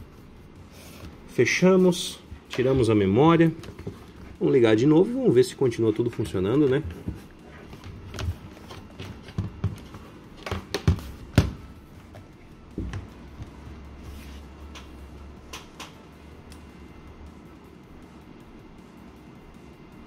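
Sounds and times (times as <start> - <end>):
laptop handling knocks and clicks: 6.6 - 12.2.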